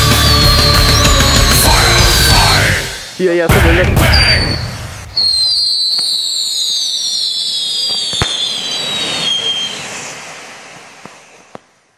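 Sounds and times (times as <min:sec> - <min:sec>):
whistling fireworks: 0:00.0 - 0:11.9
firework pops and crackles: 0:05.2 - 0:11.8.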